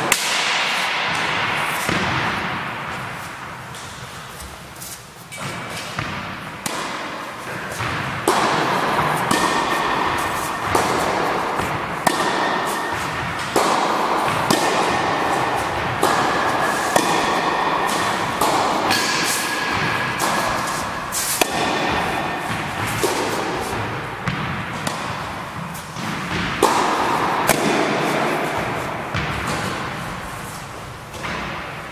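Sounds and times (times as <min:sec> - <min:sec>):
racquets striking tennis balls: 0:00.0 - 0:31.9
balls bouncing on wooden floor: 0:07.5 - 0:28.0, 0:28.6 - 0:30.2.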